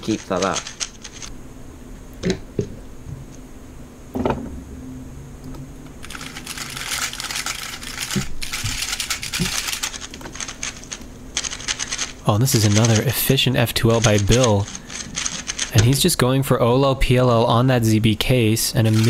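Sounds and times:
puzzle cube clicking: 0:13.9 - 0:16.0.

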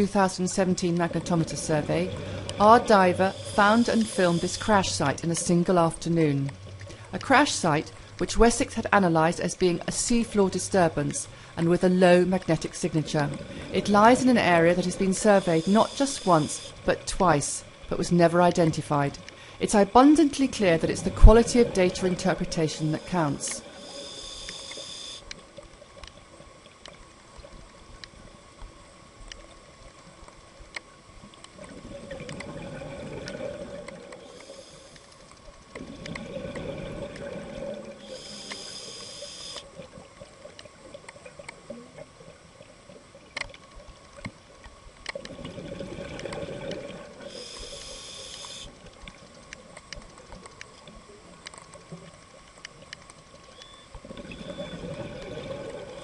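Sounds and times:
regulator inhalation hiss: 0:03.1 - 0:04.8, 0:15.2 - 0:16.8, 0:22.8 - 0:25.3, 0:34.3 - 0:35.1, 0:38.0 - 0:39.7, 0:47.2 - 0:48.8.

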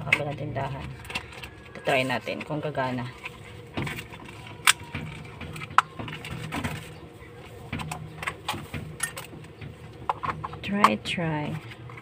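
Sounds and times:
plastic packaging clicks and knocks: 0:03.2 - 0:10.6.

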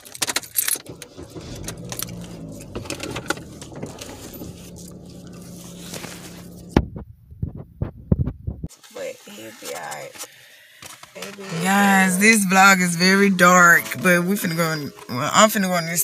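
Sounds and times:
handling clinks and rattles: 0:00.0 - 0:06.7
low steady rumble: 0:00.9 - 0:08.7.

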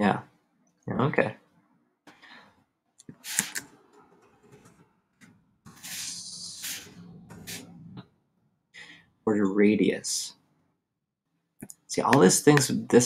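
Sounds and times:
breathy hiss: 0:05.8 - 0:07.7.

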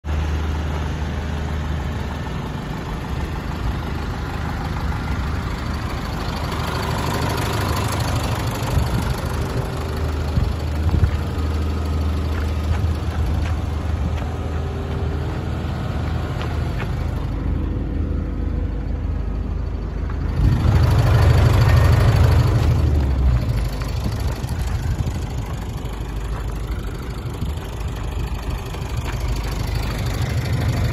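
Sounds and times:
diesel engine idling: 0:00.0 - 0:30.9.

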